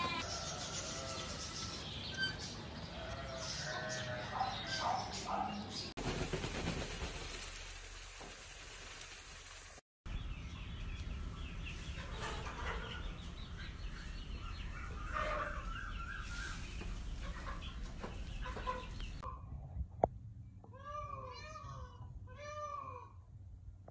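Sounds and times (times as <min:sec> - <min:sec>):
fowl clucking and chattering: 0:14.9 - 0:15.7.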